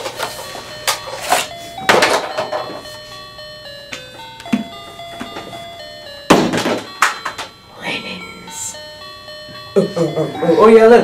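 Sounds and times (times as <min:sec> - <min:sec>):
background music of held notes: 0:00.0 - 0:11.0
sharp knocks: 0:06.3 - 0:07.4.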